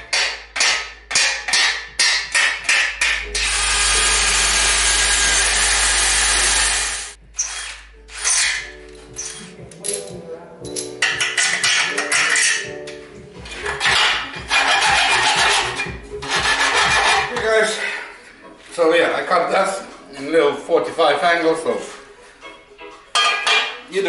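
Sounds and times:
cordless drill running: 0:03.4 - 0:07.7.

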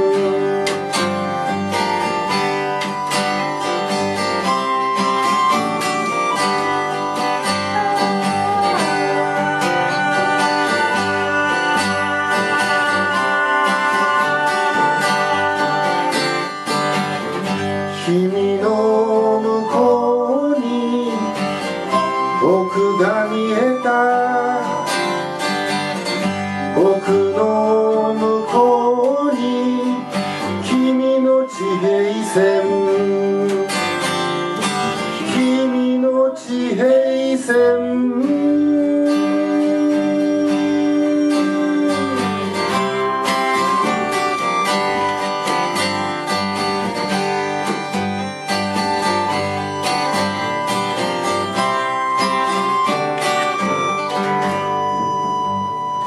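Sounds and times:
melodica melody: 0:00.0 - 0:36.0, 0:39.2 - 0:56.0
strummed acoustic guitar: 0:00.0 - 0:56.0.

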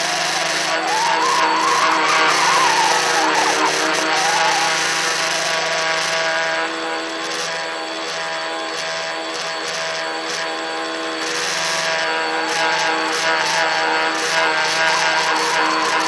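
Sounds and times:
drone propellers buzzing: 0:00.4 - 0:06.9, 0:11.8 - 0:16.0.

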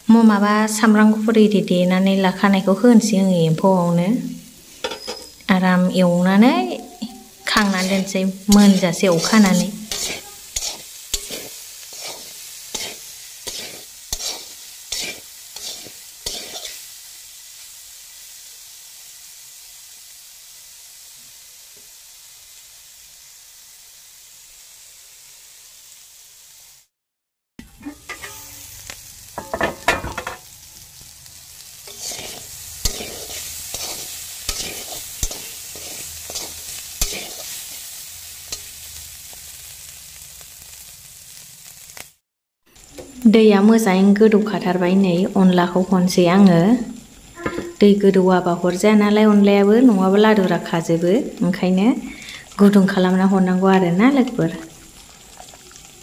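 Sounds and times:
food sizzling in oil: 0:00.0 - 0:26.9, 0:27.6 - 0:56.0
spatula scraping a wok: 0:04.6 - 0:05.4, 0:06.8 - 0:17.2, 0:27.8 - 0:39.9.

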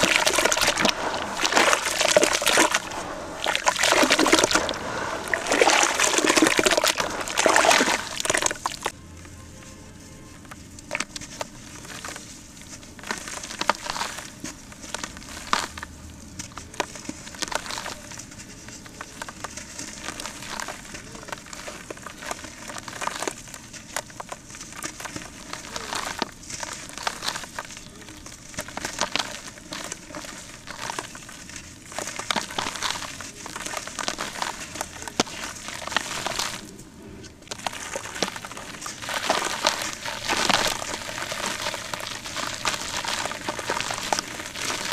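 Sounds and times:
cement crumbling by hand: 0:16.4 - 0:44.9.

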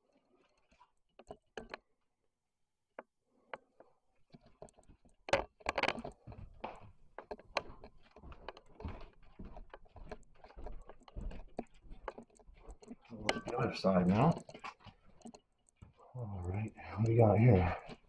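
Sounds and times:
handling clicks and knocks: 0:00.5 - 0:01.9, 0:03.0 - 0:18.0
footsteps: 0:04.3 - 0:18.0.

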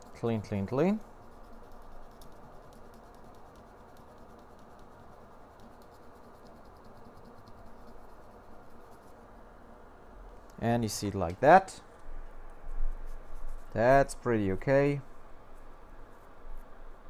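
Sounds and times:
light steady hiss: 0:00.0 - 0:17.0
small ticks: 0:01.4 - 0:08.0.

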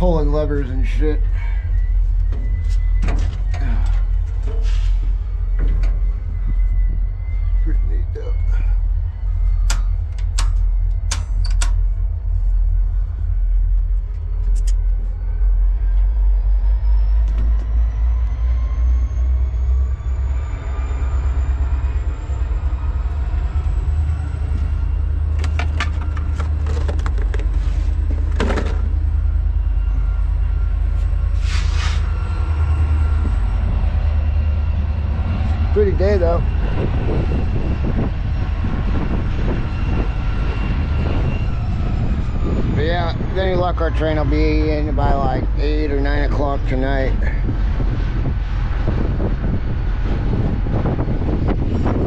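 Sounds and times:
distant diesel locomotives rumbling: 0:00.0 - 0:52.0
thin rising whine: 0:00.0 - 0:52.0
sharp metallic clicks: 0:09.6 - 0:11.8
wind buffeting microphone: 0:32.0 - 0:52.0.

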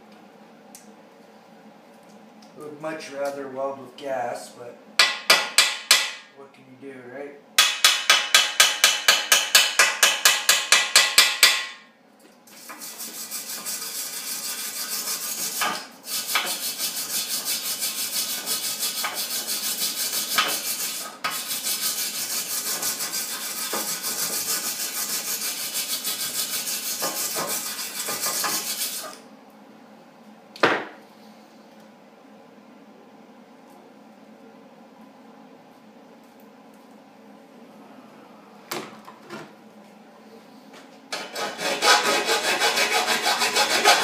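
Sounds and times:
wire brush scrubbing metal: 0:12.6 - 0:29.2, 0:41.2 - 0:44.0.

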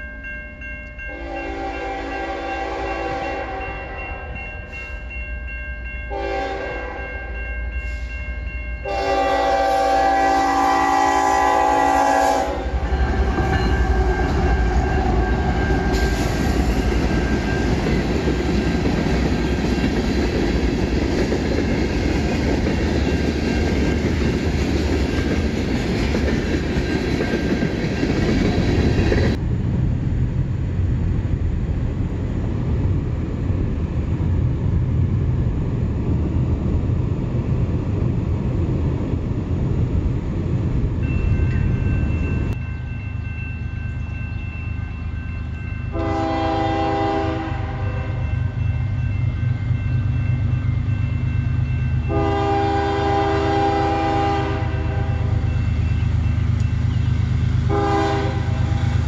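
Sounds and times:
rumble of train rolling past: 0:00.0 - 0:59.0
locomotive horn chord: 0:01.1 - 0:04.2, 0:06.1 - 0:07.2, 0:08.8 - 0:13.1, 0:45.9 - 0:48.3, 0:52.1 - 0:55.5, 0:57.7 - 0:58.8.

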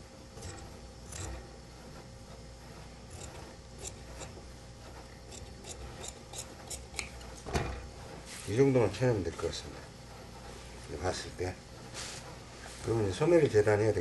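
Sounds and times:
shears snipping fabric: 0:03.1 - 0:07.4.

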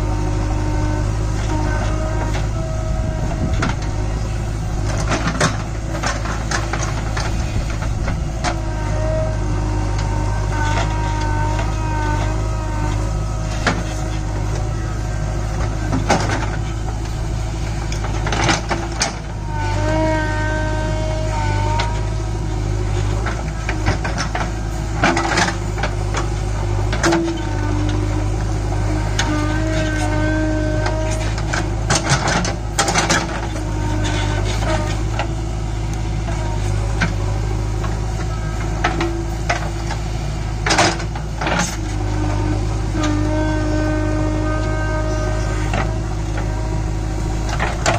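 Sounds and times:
diesel engine running: 0:00.0 - 0:47.9.

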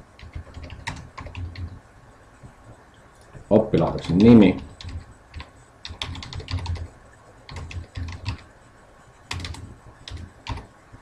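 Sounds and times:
computer keyboard typing: 0:00.2 - 0:01.8, 0:03.8 - 0:06.9, 0:07.5 - 0:08.5, 0:09.3 - 0:10.7.

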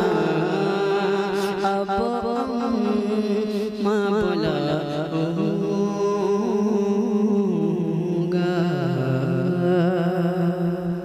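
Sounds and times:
sustained accompaniment: 0:00.0 - 0:05.8
man singing long notes: 0:00.0 - 0:11.0.

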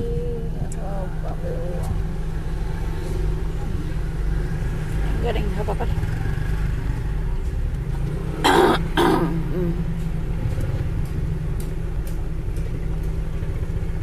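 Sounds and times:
car engine and road rumble: 0:00.0 - 0:14.0
person coughing: 0:08.5 - 0:09.4.

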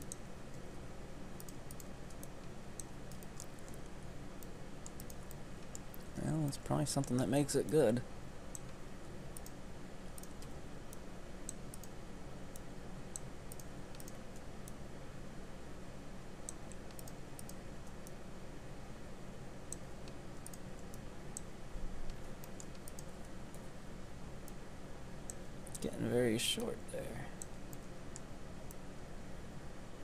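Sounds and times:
steady low hum: 0:00.0 - 0:30.0
mouse and keyboard clicks: 0:04.4 - 0:06.1, 0:12.6 - 0:14.5, 0:22.1 - 0:23.6.

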